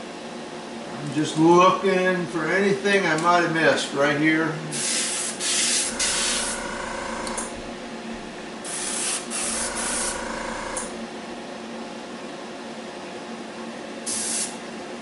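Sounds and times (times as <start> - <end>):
airbrush spraying hiss: 4.8 - 6.6, 8.7 - 10.2, 14.1 - 14.6.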